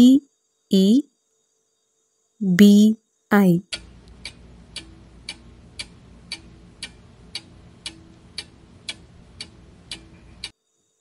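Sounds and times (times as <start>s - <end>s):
clock ticking: 3.4s - 10.6s.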